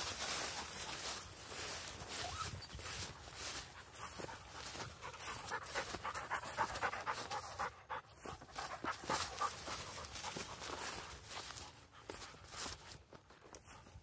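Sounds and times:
grass swishing underfoot: 0.0 - 7.6, 8.2 - 14.0
rhythmic panting breaths: 3.0 - 12.7.

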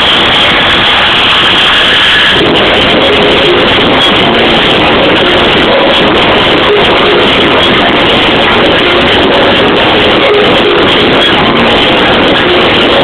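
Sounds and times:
distorted club music: 0.0 - 13.0.

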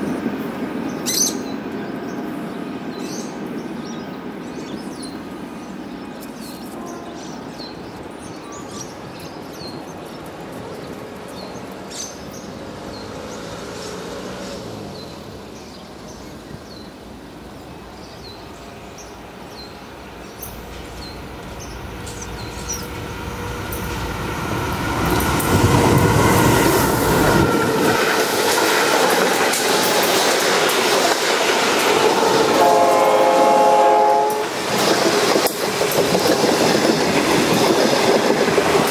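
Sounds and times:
train horn: 6.6 - 7.4, 32.2 - 34.6
locomotive engine rumble: 14.5 - 35.2.

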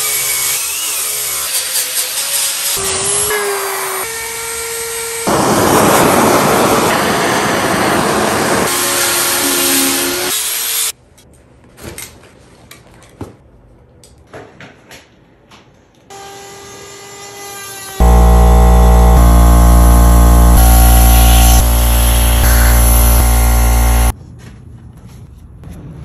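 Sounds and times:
electric grinder sanding wood: 5.2 - 10.9, 18.0 - 24.1.

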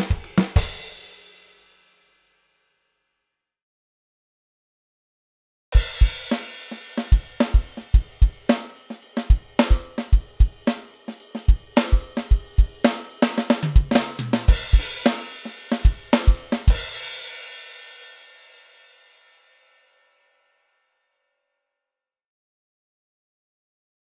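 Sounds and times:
drum kit groove: 0.0 - 1.8, 5.8 - 18.8.

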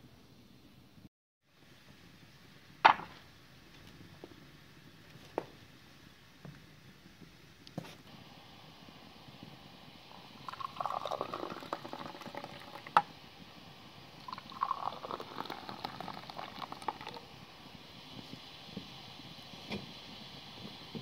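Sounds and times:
tea pouring into glass: 10.1 - 13.1, 14.1 - 17.4.

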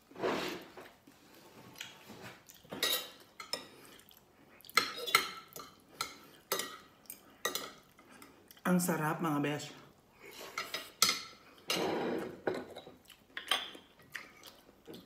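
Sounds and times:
cutlery scraping on china plate: 2.7 - 3.7, 4.8 - 6.8, 10.4 - 12.9.

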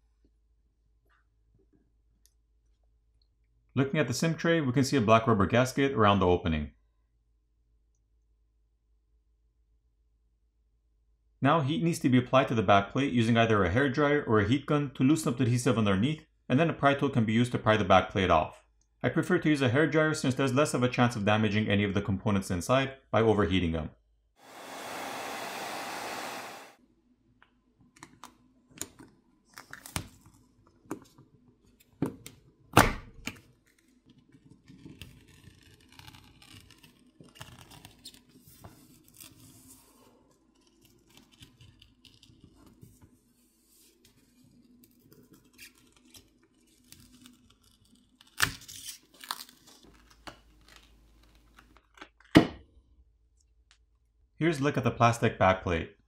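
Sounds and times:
hairdryer blowing: 24.4 - 26.8.

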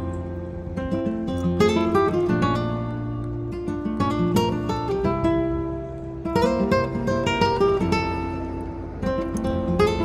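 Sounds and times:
held bass notes: 0.0 - 10.0
plucked notes: 0.0 - 10.0.

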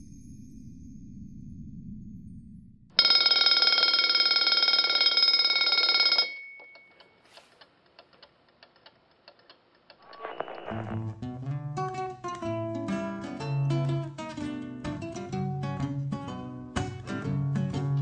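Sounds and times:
faint clicks: 7.0 - 11.0.

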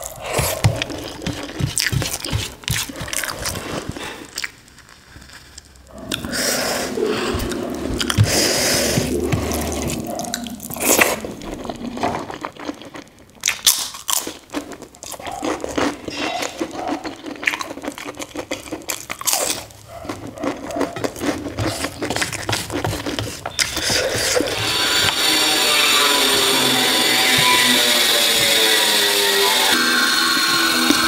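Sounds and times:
fingers mixing rice on steel plate: 0.0 - 4.0
crisp papad crunching: 0.0 - 5.9.

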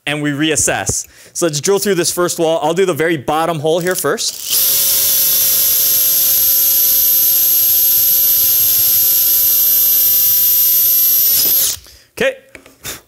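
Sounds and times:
drill boring through metal: 4.3 - 11.9.

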